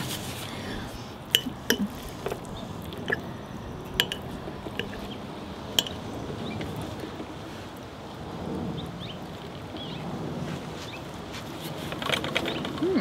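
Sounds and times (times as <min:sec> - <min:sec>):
fork clinking on ceramic bowl: 0:01.3 - 0:02.4, 0:04.0 - 0:05.1, 0:05.8 - 0:06.0.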